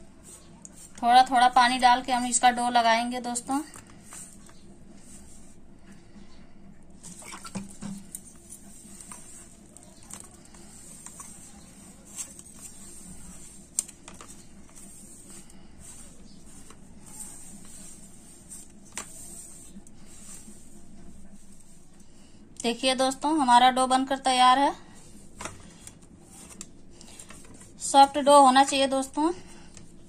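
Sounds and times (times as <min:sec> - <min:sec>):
faint steady hum: 0:00.0 - 0:30.0
dough squishing: 0:08.6 - 0:22.4.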